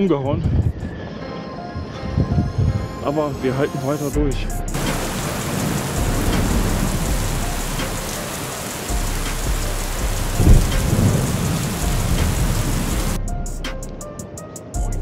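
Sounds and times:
storm wind buffeting microphone: 0:00.2 - 0:01.2, 0:04.2 - 0:13.2
rain: 0:04.7 - 0:13.2.

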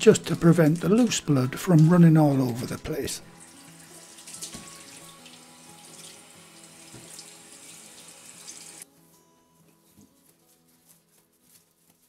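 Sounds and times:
tap water splashing into sink: 0:04.2 - 0:08.8.

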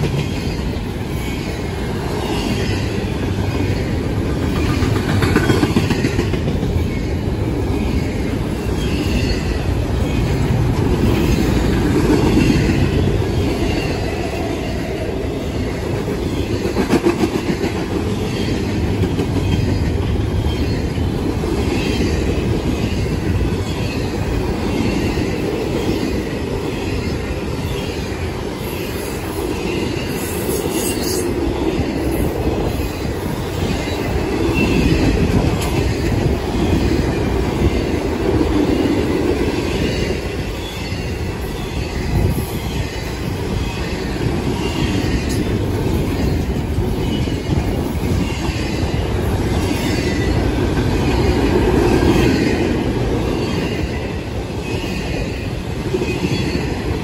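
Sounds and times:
train wheels rumbling on rail: 0:00.0 - 0:57.0
clatter over rail joints: 0:04.4 - 0:06.8.

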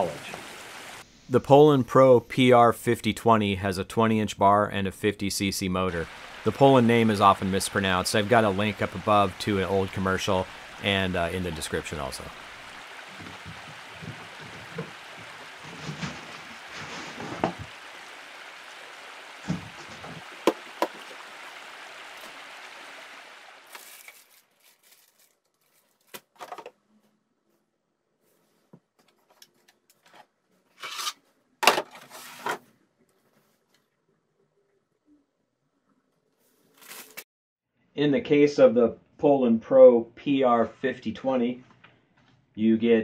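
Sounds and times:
steady hiss: 0:00.0 - 0:03.2, 0:05.4 - 0:23.8
plastic wrapping rustling: 0:13.1 - 0:17.7, 0:23.6 - 0:26.7, 0:36.4 - 0:37.2.

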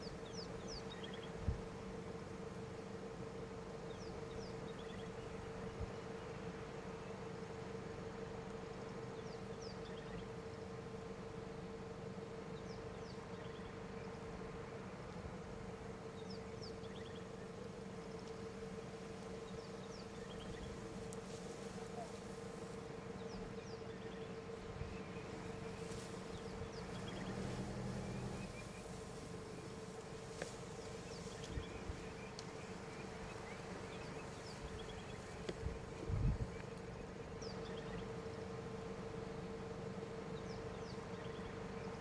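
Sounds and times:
small birds chirping: 0:00.0 - 0:03.0, 0:03.8 - 0:06.3, 0:16.0 - 0:38.2, 0:40.2 - 0:42.0
insects buzzing: 0:00.0 - 0:42.0.

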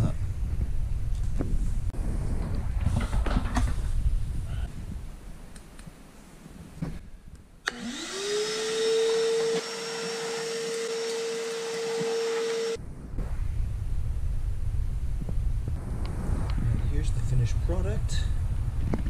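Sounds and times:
shop vacuum whining: 0:07.7 - 0:12.8.

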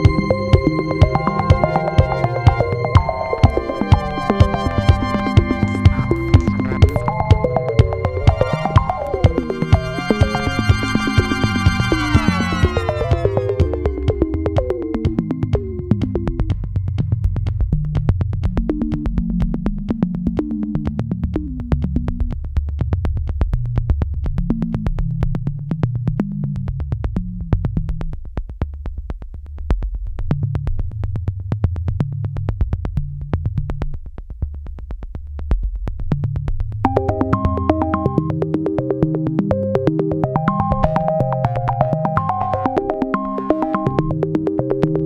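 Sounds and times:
high keyboard notes: 0:00.0 - 0:16.0, 0:36.9 - 0:45.0
synthesizer bass line: 0:00.0 - 0:16.6, 0:36.9 - 0:45.0
electronic music with beat: 0:00.0 - 0:17.2, 0:36.9 - 0:45.0.

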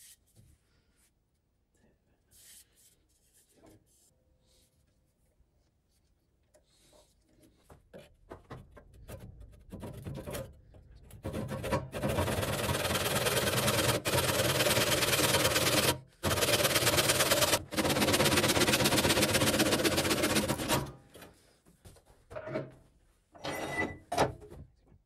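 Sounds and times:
hand saw cutting wood: 0:11.3 - 0:21.0.

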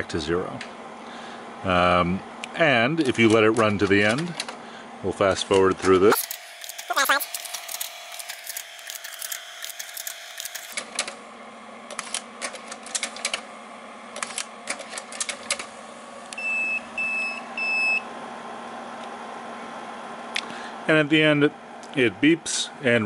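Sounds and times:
projector and camera clicking: 0:05.5 - 0:11.2, 0:11.9 - 0:13.5, 0:14.1 - 0:15.8.

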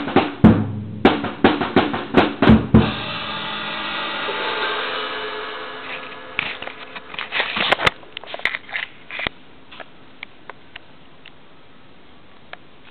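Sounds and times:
drum kit ringing: 0:00.0 - 0:08.2.

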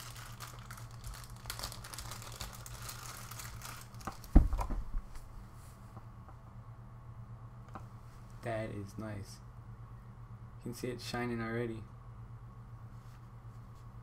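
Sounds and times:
plastic bag crinkling: 0:00.0 - 0:04.4.

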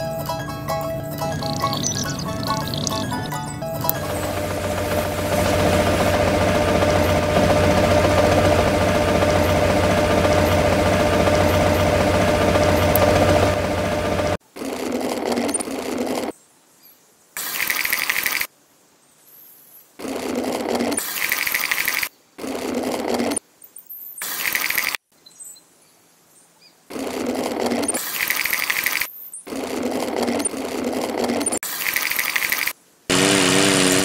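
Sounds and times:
toy electric motor whine and rattle: 0:03.8 - 0:16.3, 0:20.0 - 0:23.4, 0:26.9 - 0:34.0.

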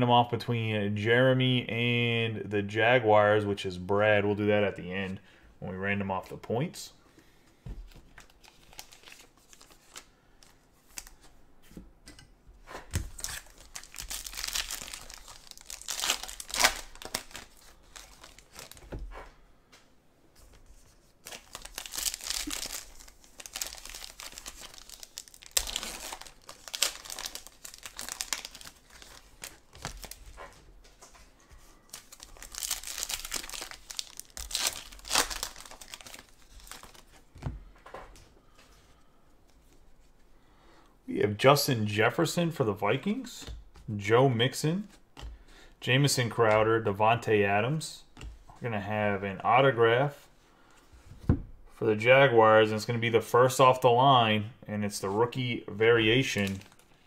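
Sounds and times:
foil wrappers tearing and crinkling: 0:13.1 - 0:18.9, 0:21.2 - 0:30.4, 0:31.8 - 0:37.3.

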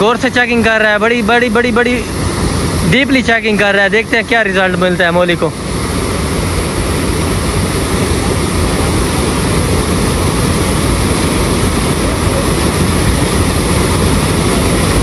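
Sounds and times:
water rushing over a drop: 0:00.0 - 0:15.0.

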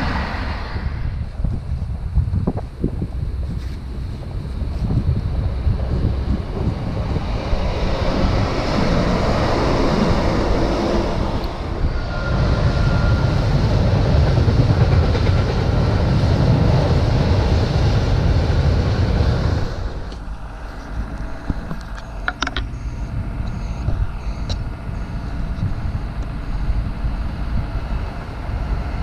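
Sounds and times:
freight train wheels rumbling: 0:00.0 - 0:29.0
wheels clacking over rail joints: 0:12.9 - 0:17.5, 0:19.7 - 0:22.8.

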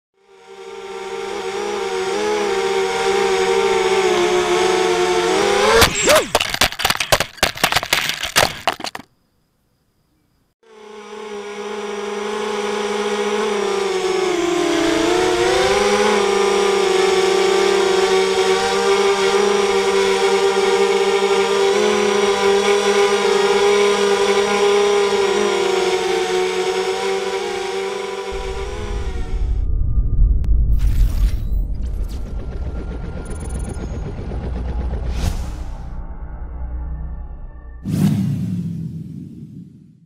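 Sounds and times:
quadcopter propellers whining: 0:00.2 - 0:07.0, 0:10.6 - 0:29.7, 0:31.8 - 0:35.9.

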